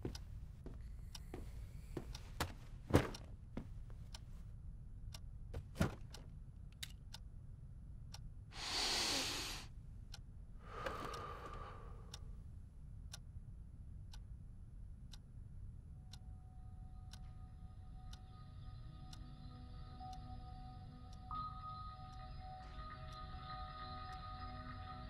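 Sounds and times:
clock ticking: 0:00.0 - 0:03.4, 0:10.1 - 0:12.2, 0:17.1 - 0:17.4.

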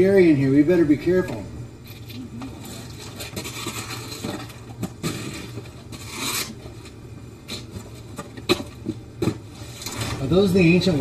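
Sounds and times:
cardboard scraping and rubbing: 0:02.7 - 0:06.9.

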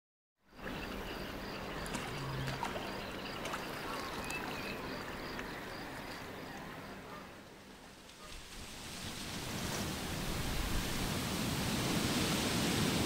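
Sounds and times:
faint bird chirps: 0:00.5 - 0:07.3
water lapping among rocks: 0:00.6 - 0:06.4.

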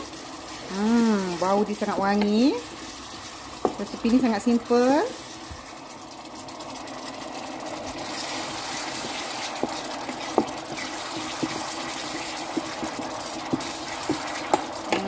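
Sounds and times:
sauce simmering and bubbling: 0:00.0 - 0:15.0
wooden spatula knocking pot: 0:03.6 - 0:04.3, 0:08.9 - 0:15.0.

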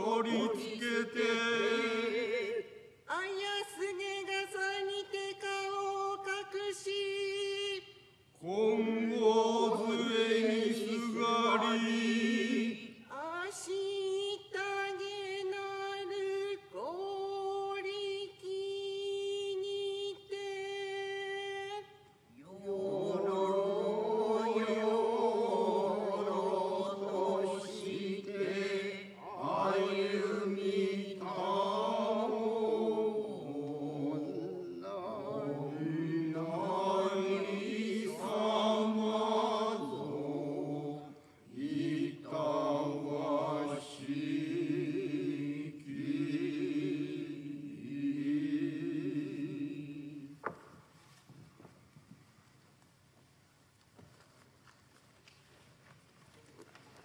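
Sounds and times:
voices chanting on held notes: 0:22.5 - 0:50.3.

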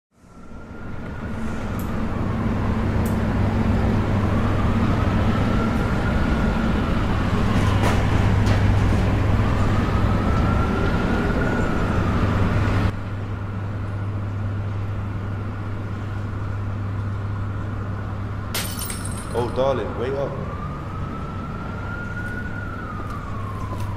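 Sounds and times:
traffic rumble: 0:00.2 - 0:23.9.

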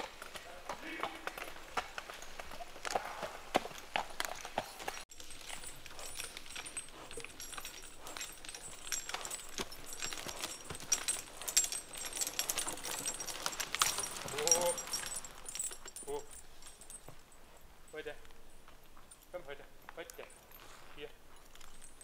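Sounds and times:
chain and harness jingling: 0:00.0 - 0:22.0
hooves knocking and twigs cracking: 0:00.0 - 0:22.0.

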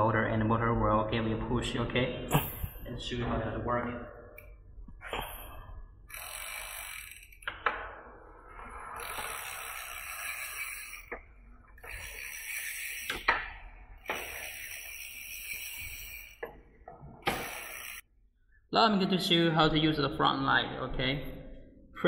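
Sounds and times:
electric bike motor whirring: 0:05.1 - 0:07.5, 0:08.6 - 0:16.6, 0:17.2 - 0:18.1.

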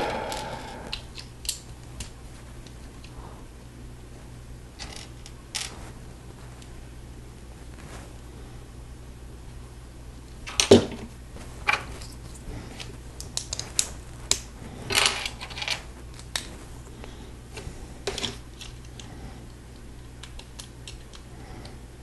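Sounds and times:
plastic bricks clicking and snapping: 0:20.2 - 0:21.3.

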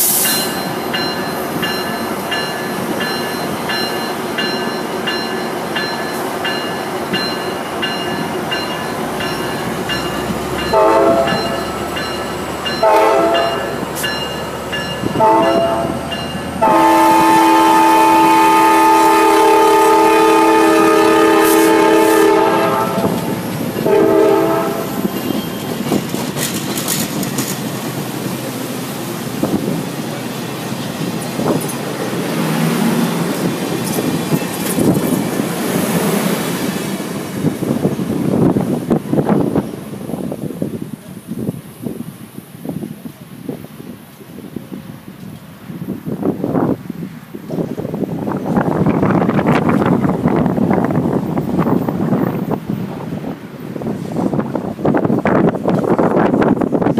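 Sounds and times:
diesel locomotive engine: 0:00.0 - 0:56.9
locomotive bell dinging: 0:00.1 - 0:17.2
train air horn blasts: 0:10.7 - 0:11.7, 0:12.8 - 0:13.8, 0:15.1 - 0:25.1
wheels on rails: 0:24.8 - 0:28.6.

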